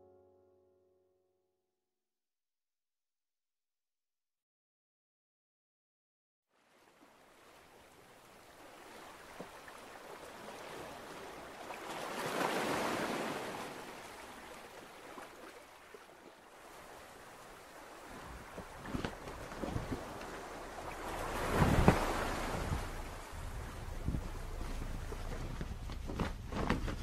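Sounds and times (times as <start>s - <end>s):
sea waves washing: 6.6s - 26.1s.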